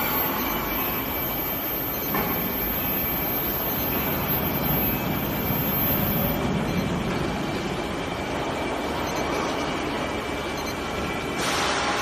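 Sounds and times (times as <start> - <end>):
faint high whine: 0.0 - 8.4.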